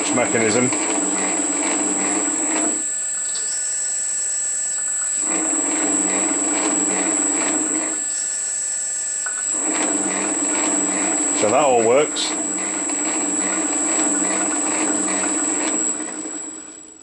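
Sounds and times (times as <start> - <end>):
metal shaper ram running: 0.0 - 3.8, 4.9 - 8.6, 9.3 - 17.0
faint motor whine: 0.0 - 17.0.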